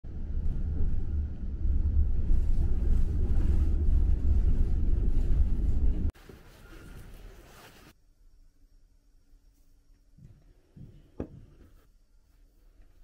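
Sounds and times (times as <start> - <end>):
vehicle rumble inside cabin: 0.1 - 6.1.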